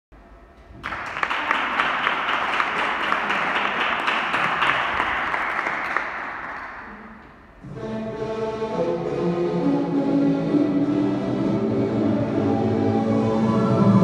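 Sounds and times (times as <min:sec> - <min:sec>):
audience applauding: 0:00.8 - 0:07.0.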